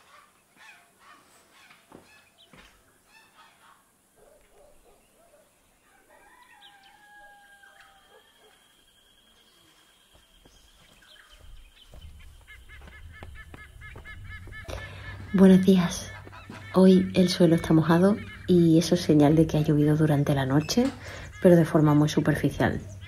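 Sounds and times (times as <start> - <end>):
soft poultry calls: 0.0 - 3.9, 11.4 - 19.2
faint rooster crowing: 5.3 - 9.7.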